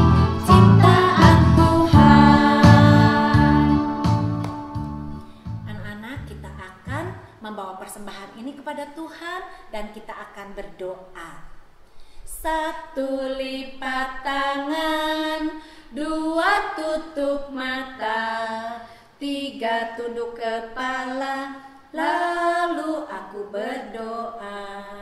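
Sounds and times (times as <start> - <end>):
women singing unaccompanied: 0.0 - 5.0, 12.3 - 25.0.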